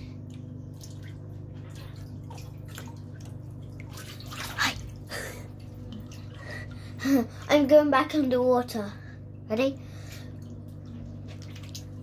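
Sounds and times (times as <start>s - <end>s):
steady low hum: 0.0s - 12.0s
water sloshing in a hot tub: 0.0s - 12.0s
short splashes: 0.7s - 7.6s.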